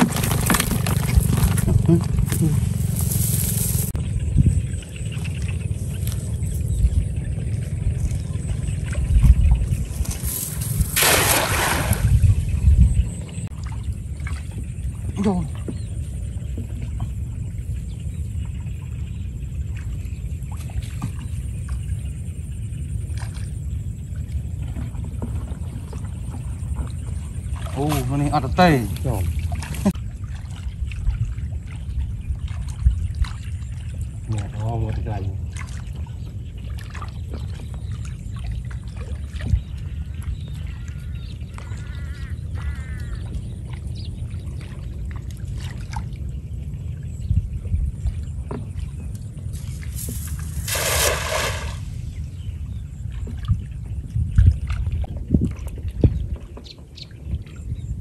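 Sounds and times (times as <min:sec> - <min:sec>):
wind buffeting microphone: 0:00.0 - 0:21.3, 0:23.6 - 0:34.3, 0:37.2 - 0:58.0
water splashing and dripping: 0:07.6 - 0:12.6, 0:24.2 - 0:46.8, 0:47.9 - 0:56.6.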